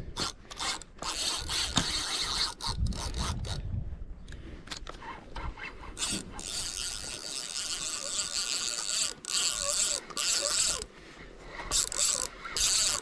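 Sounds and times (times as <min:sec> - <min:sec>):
fishing reel clicks: 0:00.2 - 0:03.6, 0:06.0 - 0:10.9, 0:11.6 - 0:13.0
fishing reel winding: 0:00.2 - 0:03.7, 0:06.0 - 0:10.9, 0:11.6 - 0:13.0.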